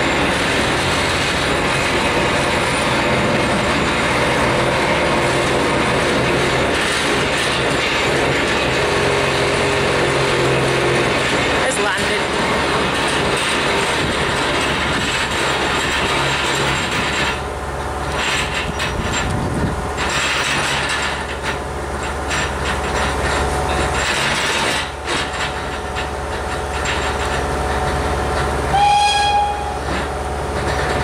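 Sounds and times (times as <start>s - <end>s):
locomotive wheels clanking on ramp: 0.0s - 31.0s
short high-pitched squeal: 28.7s - 30.0s.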